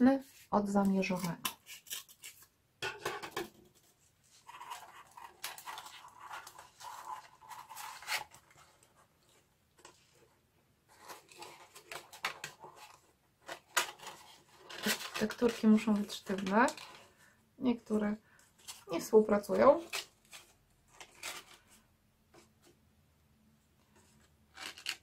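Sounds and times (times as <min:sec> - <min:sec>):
cardboard rustling and scraping: 0:03.6 - 0:17.0.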